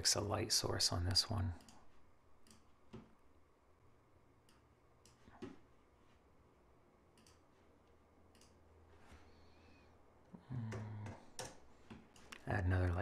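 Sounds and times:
computer mouse clicks: 0:02.4 - 0:03.1, 0:07.1 - 0:07.4, 0:08.3 - 0:08.6.

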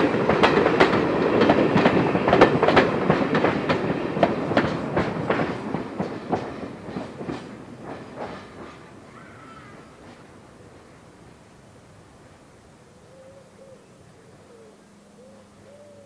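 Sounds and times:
train wheels clicking over rail joints: 0:00.0 - 0:11.6
train rumble: 0:00.0 - 0:13.1.

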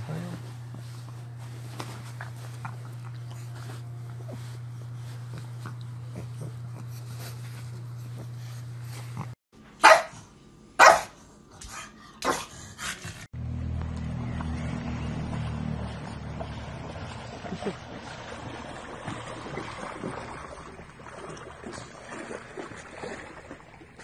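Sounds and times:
steady low hum: 0:00.0 - 0:24.0
dog barking: 0:09.8 - 0:10.2, 0:10.8 - 0:11.2.

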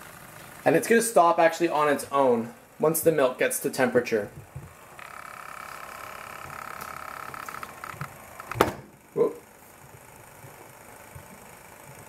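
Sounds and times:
milk frother whirring: 0:00.0 - 0:00.7, 0:04.4 - 0:12.0.

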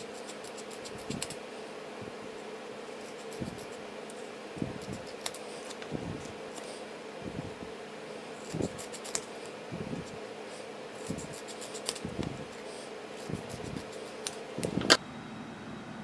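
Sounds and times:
scissors snipping sticker sheet: 0:00.0 - 0:01.4, 0:02.9 - 0:06.8, 0:08.4 - 0:09.6, 0:11.0 - 0:12.6, 0:13.2 - 0:15.0.

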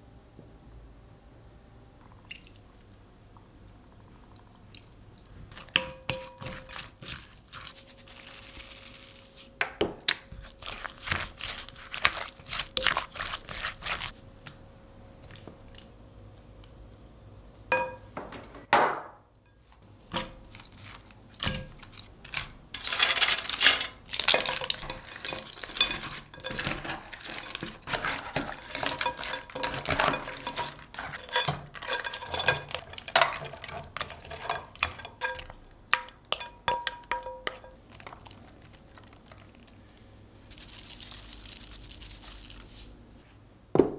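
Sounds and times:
spatula scraping glass bowl: 0:24.4 - 0:35.6.

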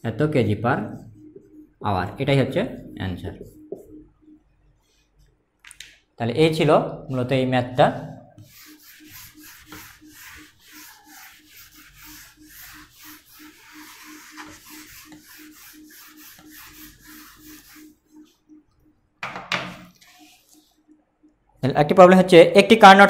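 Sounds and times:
eraser rubbing on whiteboard: 0:08.4 - 0:18.5, 0:19.7 - 0:20.8.

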